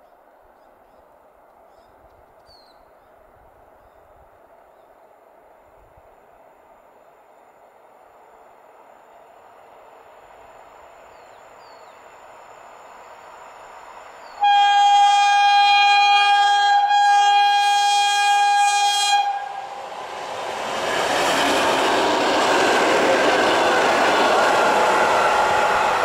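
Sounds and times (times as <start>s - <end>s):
train rumble: 3.2s - 26.0s
loud train horn blast: 14.3s - 19.9s, 23.4s - 26.0s
train wheels rushing past: 16.2s - 26.0s.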